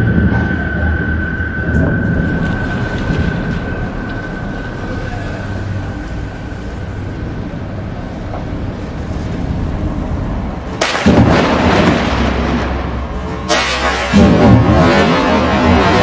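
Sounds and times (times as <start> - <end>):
loud thunderclap: 0.0 - 4.0, 10.8 - 13.1
low thunder rumble: 0.0 - 7.9.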